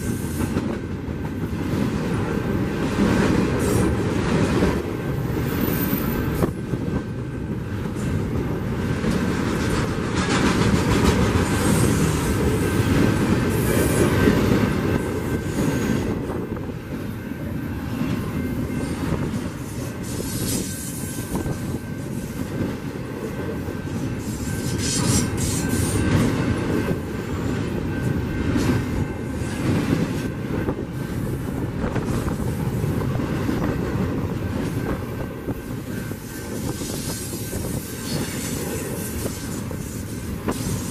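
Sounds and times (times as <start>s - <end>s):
train wheels rumbling on rail: 0.0s - 40.9s
high wheel squeals: 5.4s - 6.5s.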